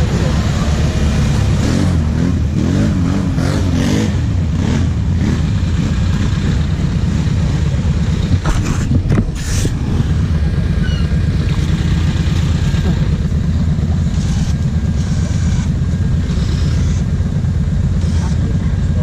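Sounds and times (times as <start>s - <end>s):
quad engine running: 0.0s - 19.0s.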